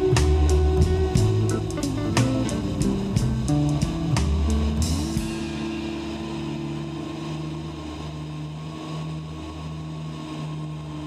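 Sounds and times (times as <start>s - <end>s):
background music with drum hits: 0.0s - 5.9s.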